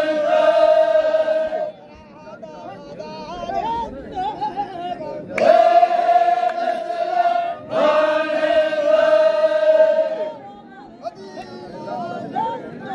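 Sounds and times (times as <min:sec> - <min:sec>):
men's chorus singing held notes: 0:00.0 - 0:01.9, 0:05.0 - 0:10.5.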